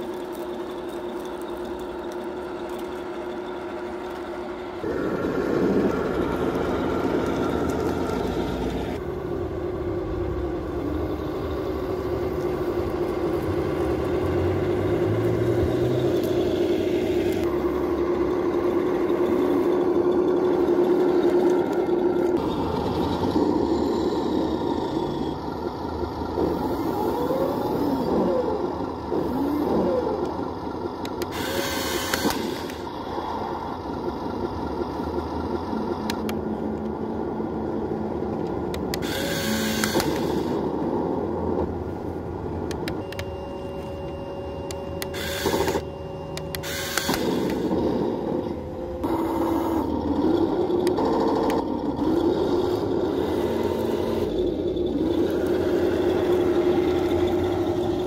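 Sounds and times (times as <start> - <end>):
toy tank motor running: 0.0 - 9.0, 10.7 - 36.3, 38.7 - 40.7, 44.7 - 58.0
small electric motors whirring: 26.4 - 32.9, 38.7 - 40.7, 43.7 - 58.0.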